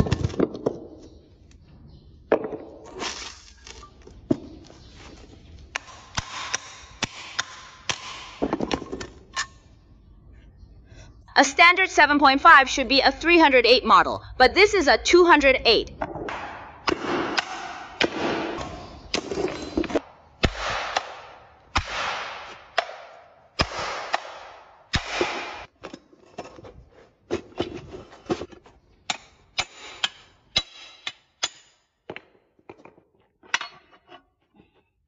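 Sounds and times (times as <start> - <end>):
metal knocks and clangs: 18.6 - 20.1, 25.8 - 34.8.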